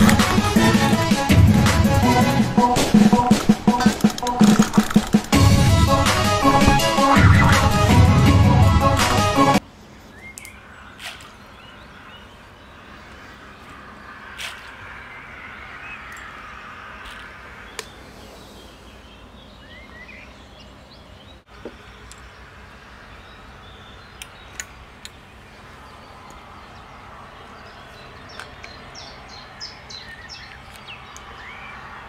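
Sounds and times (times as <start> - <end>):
sharp clicks: 3.3 - 5.4, 24.2 - 25.2
small birds chirping: 9.8 - 32.0.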